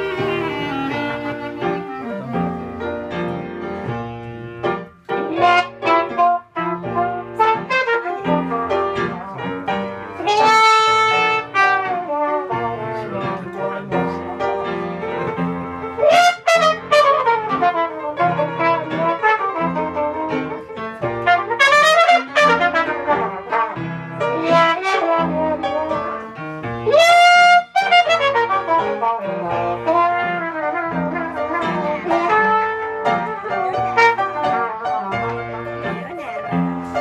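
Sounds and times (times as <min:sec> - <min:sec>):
trumpet solo: 0:00.0 - 0:04.1, 0:04.7 - 0:37.0
piano accompaniment: 0:00.0 - 0:37.0.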